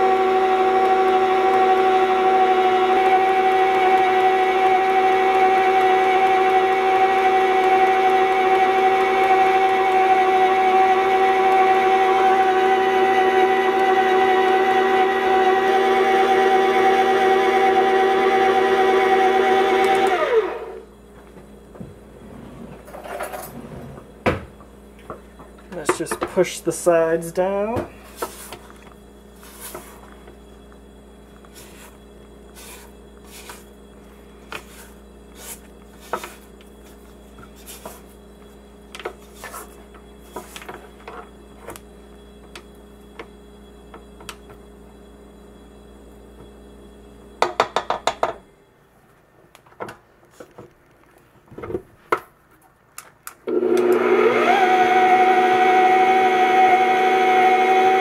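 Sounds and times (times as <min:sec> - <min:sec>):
stand mixer running: 0:00.0 - 0:20.9, 0:53.5 - 0:58.0.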